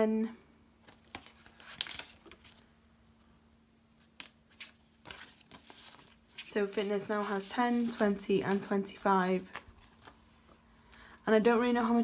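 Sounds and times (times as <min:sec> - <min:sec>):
plastic envelope and banknotes rustling: 0:00.8 - 0:02.7, 0:04.0 - 0:10.6.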